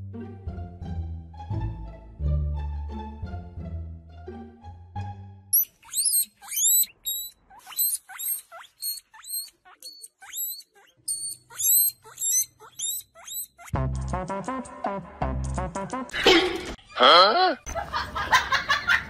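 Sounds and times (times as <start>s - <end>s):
music: 0.0s - 5.6s, 13.7s - 17.0s
guinea pig squealing: 5.5s - 13.8s.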